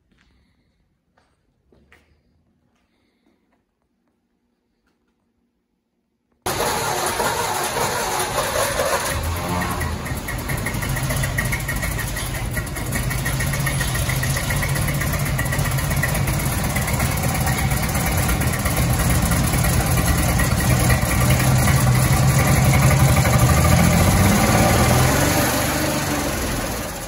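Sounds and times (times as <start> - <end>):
car engine idling: 6.5 - 27.0.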